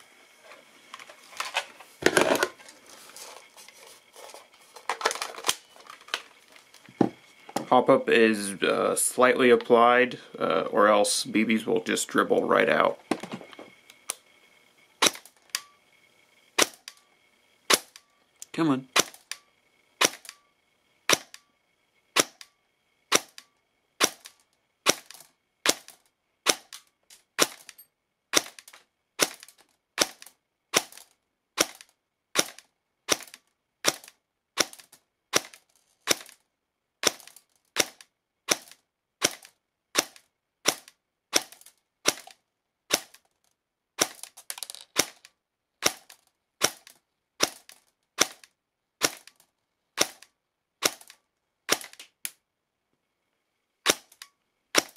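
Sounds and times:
airsoft gun shots cracking: 20.0 - 20.3, 48.2 - 48.4, 51.7 - 52.0.

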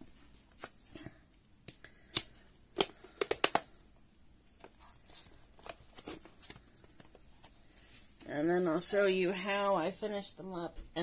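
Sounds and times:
plastic lid snaps: 1.7 - 3.7
plastic clicks and knocks: 2.8 - 3.7.

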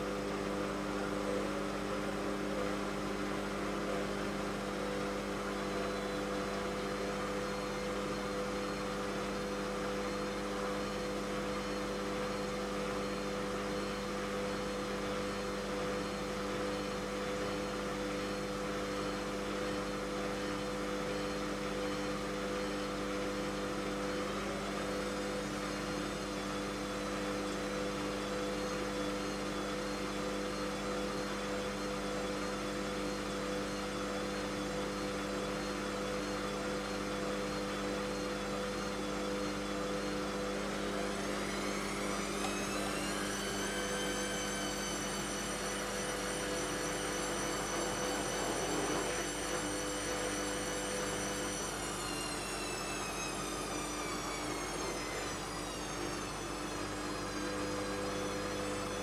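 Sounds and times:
washing machine drum spinning: 40.4 - 55.3.

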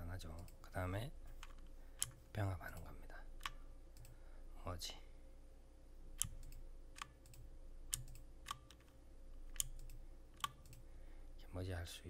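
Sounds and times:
computer mouse clicks: 1.3 - 4.2, 6.2 - 10.9.

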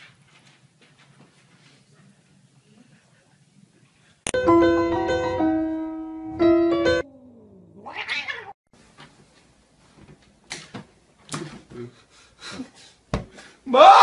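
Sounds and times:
held keyboard notes: 4.3 - 7.0.

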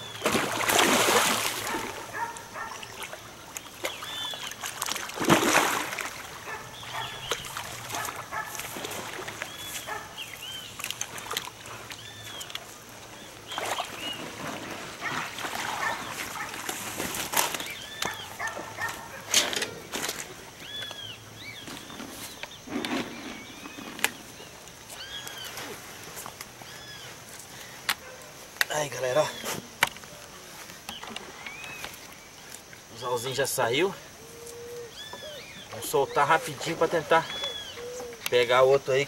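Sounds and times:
water splashing: 0.0 - 19.2.

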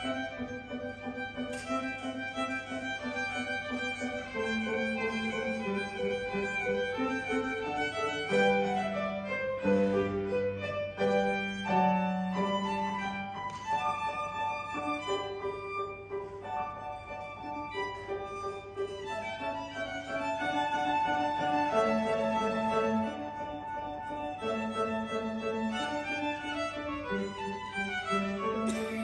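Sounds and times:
piano accompaniment: 0.0 - 29.0
violin melody: 0.0 - 29.0.

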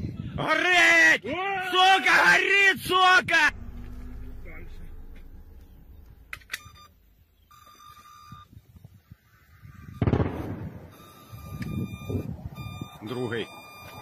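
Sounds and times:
loud boom: 3.4 - 6.3.

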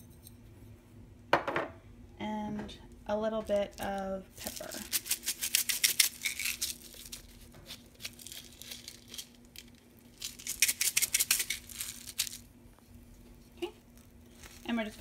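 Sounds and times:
faint steady hum: 0.0 - 15.0
pepper grinder crunching: 3.7 - 12.5, 13.7 - 15.0.

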